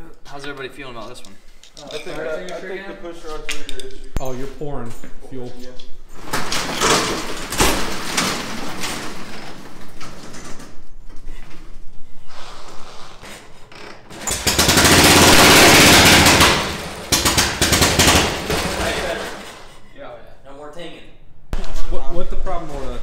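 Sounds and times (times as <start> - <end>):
motorcycle engine popping and revving: 14.2 - 19.0.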